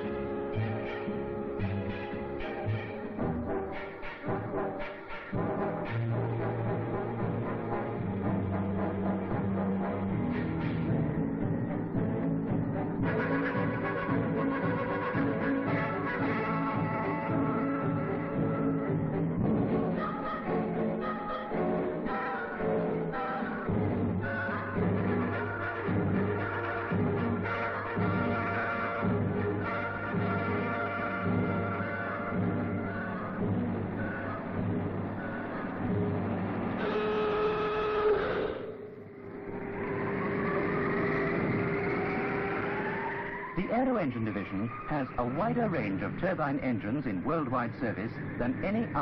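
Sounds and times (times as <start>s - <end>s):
film music with held notes: 0.0s - 49.0s
turboprop engine whine: 38.8s - 43.7s.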